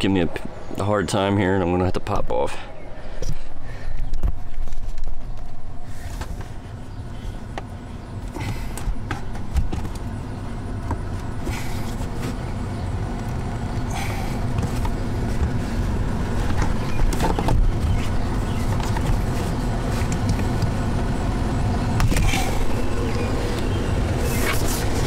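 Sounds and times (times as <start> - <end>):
steady low rumble: 0.0 - 25.0.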